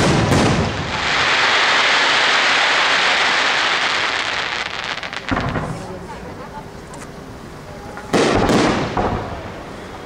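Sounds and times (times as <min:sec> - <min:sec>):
firework crackles: 0:00.0 - 0:06.2, 0:08.0 - 0:10.0
firework hiss and sizzle: 0:00.0 - 0:06.3.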